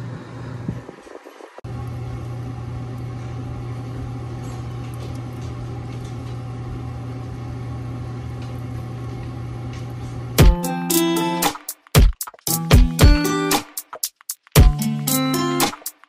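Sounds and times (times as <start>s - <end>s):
steady low hum: 0.0s - 10.6s.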